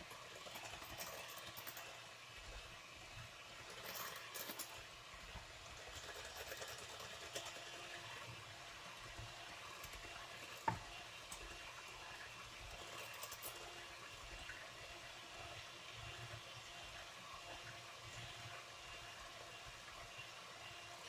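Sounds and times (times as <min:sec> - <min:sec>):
electric hand mixer whisking: 0:00.0 - 0:15.0.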